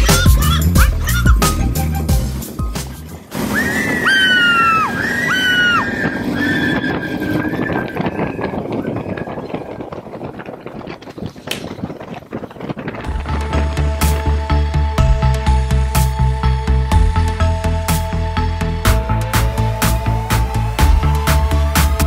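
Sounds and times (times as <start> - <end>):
background music with steady beat: 0.0 - 3.3, 13.1 - 22.0
wind and road noise: 0.0 - 22.0.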